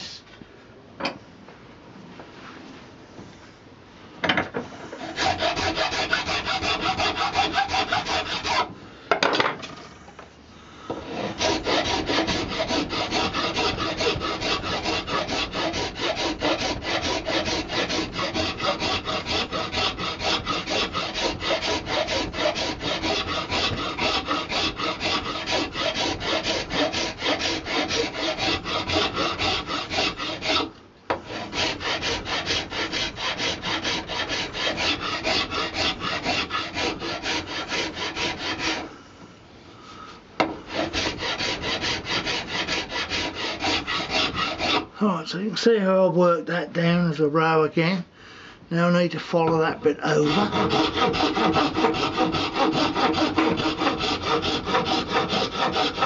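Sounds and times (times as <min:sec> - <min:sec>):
file rasping on horn: 0:04.9 - 0:08.7, 0:11.0 - 0:38.9, 0:40.7 - 0:44.9, 0:50.0 - 0:56.0.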